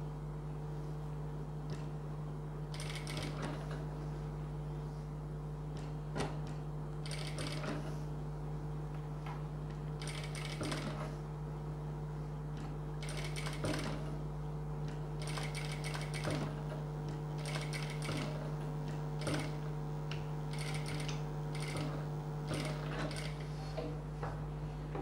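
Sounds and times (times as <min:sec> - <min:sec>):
steady low hum: 0:00.0 - 0:25.0
industrial sewing machine stitching: 0:02.7 - 0:03.9, 0:06.1 - 0:08.0, 0:10.0 - 0:11.2, 0:12.6 - 0:14.2, 0:15.2 - 0:19.8, 0:20.5 - 0:23.7.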